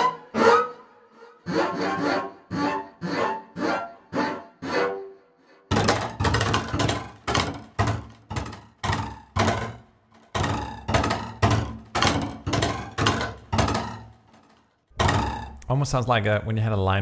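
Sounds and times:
double bass percussive strikes: 10.4s - 14.2s, 15.0s - 15.7s.

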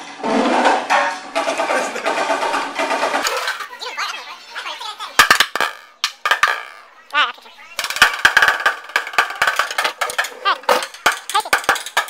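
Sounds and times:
drumsticks beating a bucket: 5.2s - 6.8s, 7.8s - 12.0s.

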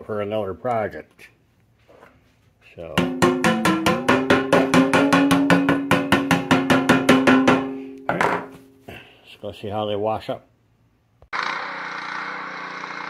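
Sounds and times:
fast percussive beat: 3.0s - 8.2s.

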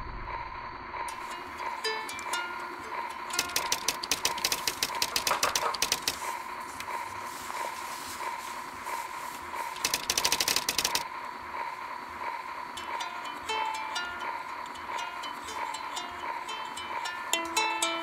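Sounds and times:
steady high tone: 0.0s - 4.3s, 12.7s - 18.0s
typewriter keys clattering: 3.3s - 6.3s, 9.8s - 11.0s.

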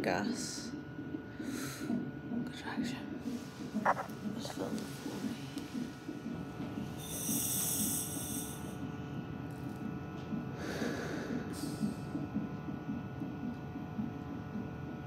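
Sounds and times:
low rhythmic whooshing pulse: 0.0s - 15.0s
demand valve hissing: 7.0s - 8.8s.

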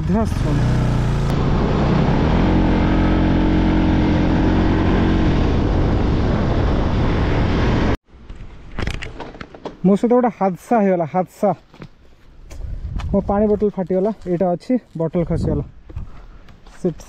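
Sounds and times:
vehicle engine running: 0.0s - 7.9s
wind rumble on microphone: 3.7s - 8.0s, 12.5s - 13.8s, 15.2s - 16.2s.

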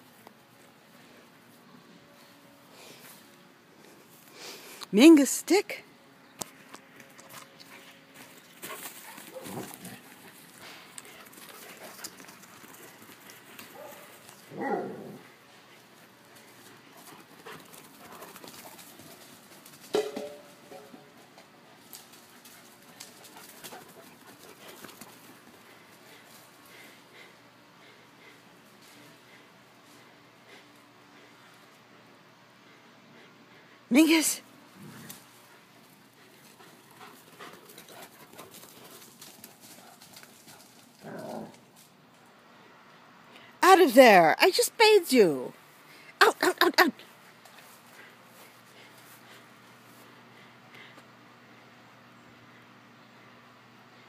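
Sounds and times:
dog barking: 13.7s - 14.0s, 14.6s - 15.1s.

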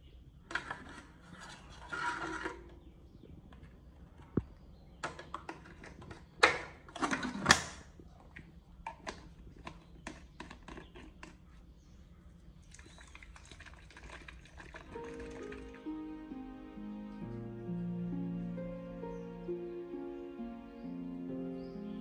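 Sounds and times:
knocks and scrapes of tin: 0.5s - 2.9s.

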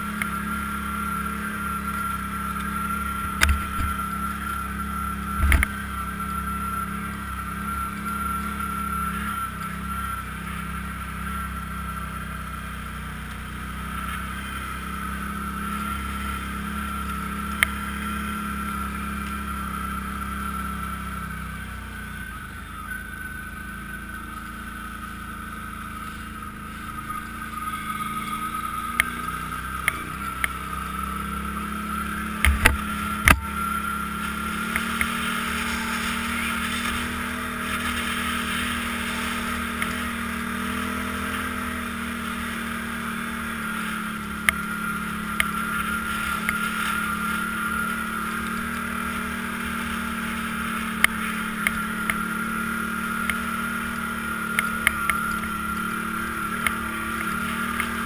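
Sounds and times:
atv engine running: 0.0s - 58.0s.

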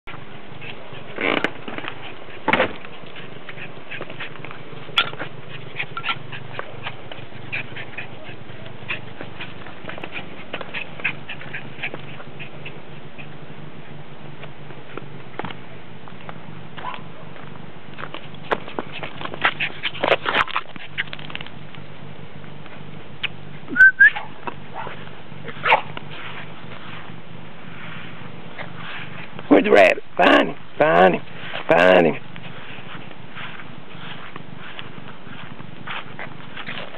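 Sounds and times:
puppy clicks and scuffs: 0.1s - 13.3s, 17.9s - 21.8s, 34.0s - 36.9s.

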